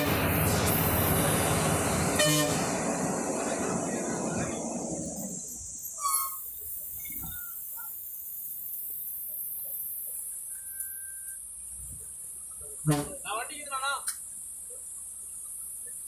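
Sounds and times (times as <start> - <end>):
bus engine and road noise: 0.0 - 13.4, 14.0 - 16.0
vehicle horn toot: 2.1 - 2.7.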